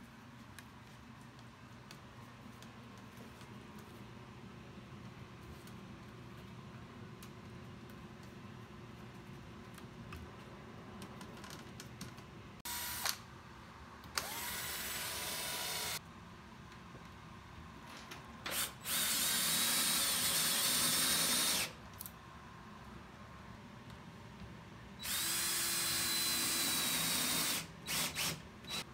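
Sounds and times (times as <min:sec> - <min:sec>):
power drill running: 0:12.7 - 0:13.2, 0:14.2 - 0:16.0, 0:18.5 - 0:21.8, 0:25.0 - 0:28.9.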